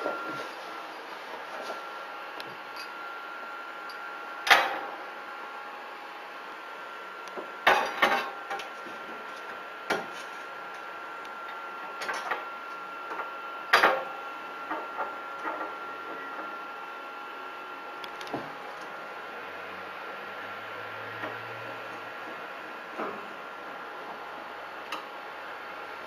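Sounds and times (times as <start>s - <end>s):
faint high whine: 0.0s - 8.6s.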